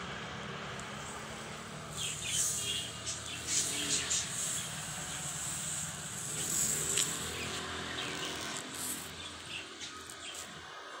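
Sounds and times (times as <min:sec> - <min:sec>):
high hiss: 0:00.8 - 0:10.8.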